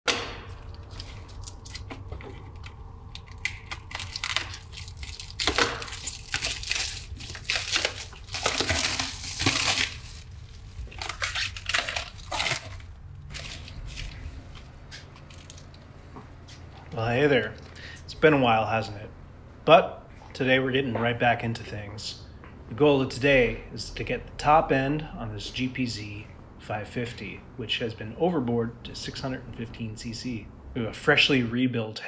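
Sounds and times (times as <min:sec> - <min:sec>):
low steady hum: 0:00.1 - 0:32.0
plastic wrap crinkling and tearing: 0:00.5 - 0:15.8.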